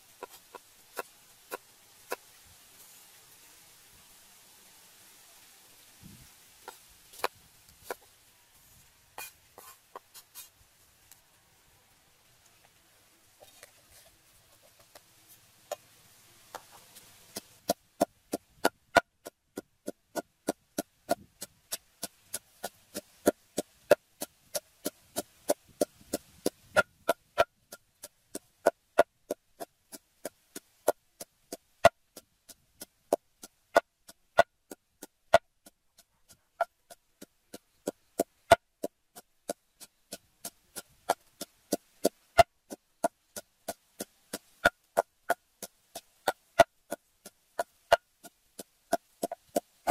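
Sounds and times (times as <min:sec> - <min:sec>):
wooden pestle pounding in mortar: 0:48.9 - 0:49.9.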